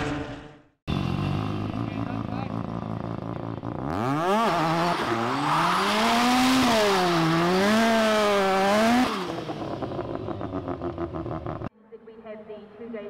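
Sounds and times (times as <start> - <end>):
rotary engine revving: 0.0 - 11.7.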